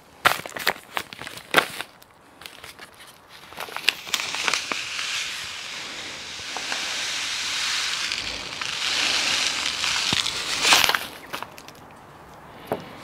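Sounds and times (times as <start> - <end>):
granules pouring into metal cup: 3.9 - 11.6.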